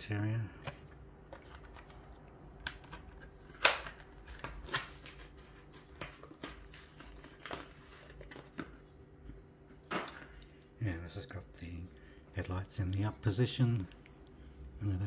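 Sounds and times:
plastic blister pack crinkling: 1.3s - 8.9s.

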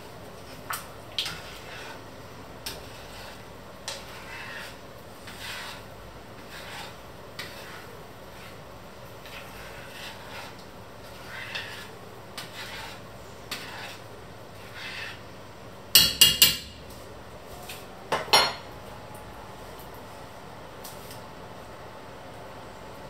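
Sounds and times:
spoon stirring thick sauce: 0.4s - 15.3s.

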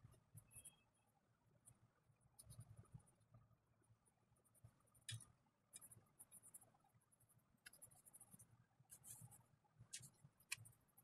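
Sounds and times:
pencil scratching on paper: 4.4s - 11.0s
pencil ticks: 4.8s - 6.8s, 7.6s - 11.0s.

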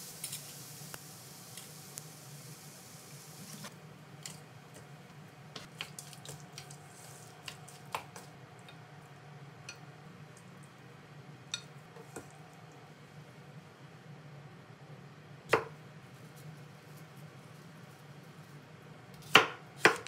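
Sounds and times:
wet squishing of greens: 5.6s - 8.3s.

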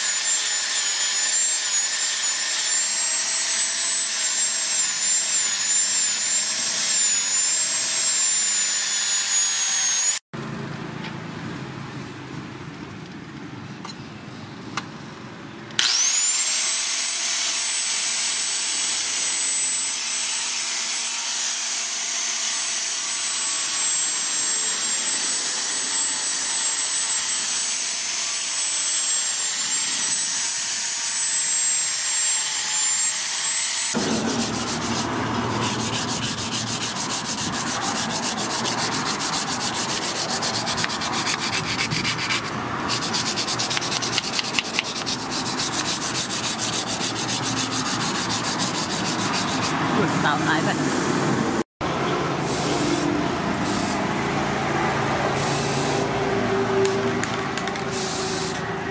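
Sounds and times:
angle grinder whining on steel: 0.0s - 10.3s, 15.8s - 50.8s
sandpaper rubbing on blade: 34.0s - 49.8s.

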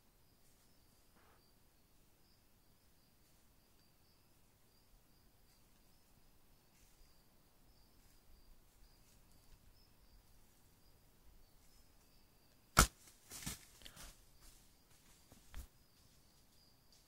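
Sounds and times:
insects trilling: 0.0s - 17.0s
rustling in dry leaves: 12.9s - 16.1s.

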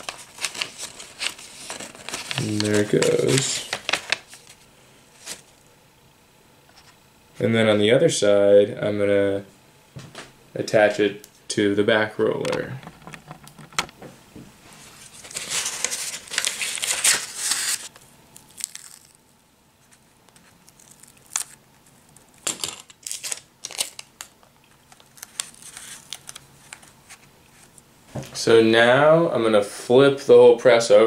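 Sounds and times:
wrapping paper crinkling: 0.0s - 5.6s, 14.8s - 27.8s
sticky tape pulled and torn: 16.8s - 19.2s.

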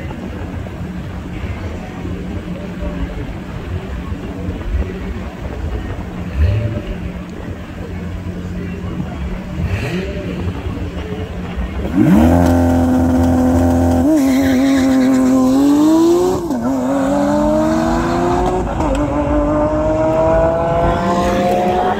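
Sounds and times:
sports car engine revving: 5.9s - 21.9s
gear upshifts: 9.5s - 21.9s.

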